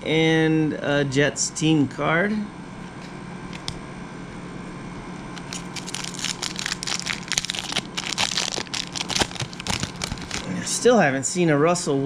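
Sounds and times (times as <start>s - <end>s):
foil wrapper tearing and crinkling: 5.4s - 10.6s.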